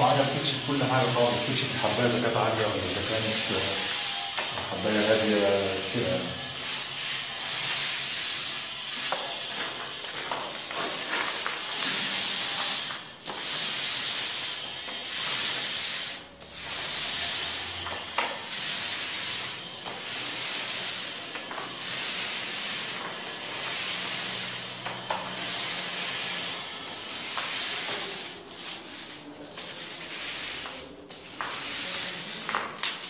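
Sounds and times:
paint roller swishing on wall: 0.0 - 33.0.

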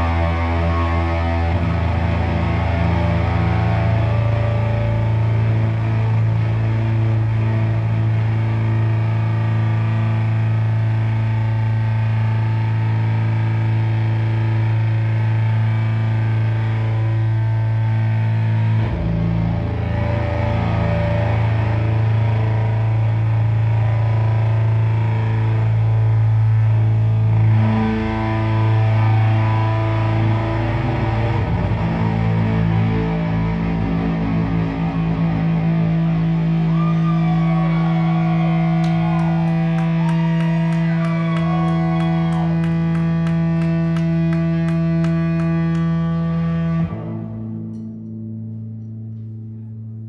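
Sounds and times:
live band playing distorted music: 0.0 - 10.8, 27.4 - 47.2.

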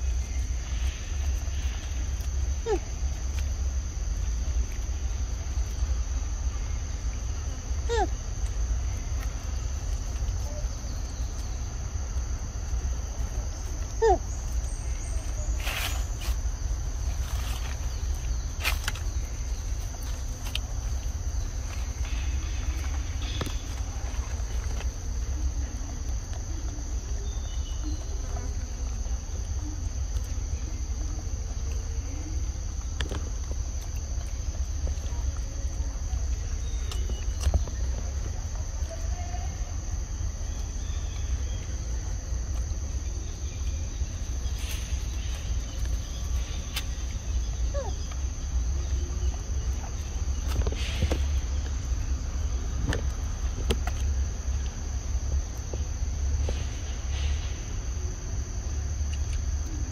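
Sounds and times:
insects droning: 0.0 - 59.9.

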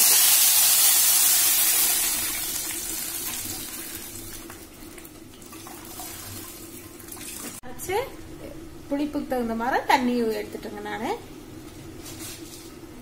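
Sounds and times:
liquid sizzling in hot oil: 0.0 - 4.3.

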